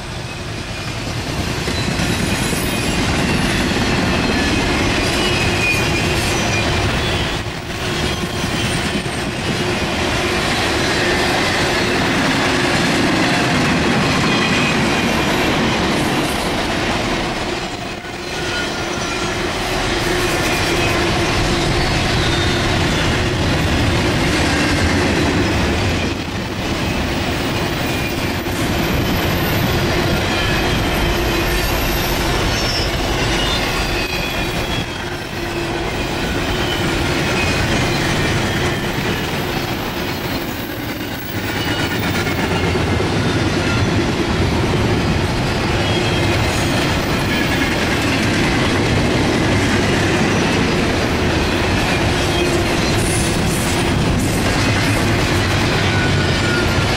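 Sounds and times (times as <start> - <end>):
train wheels rumbling and clattering: 0.0 - 56.9
high wheel squeals: 1.6 - 9.5, 17.6 - 44.0, 45.0 - 48.3, 55.4 - 56.9.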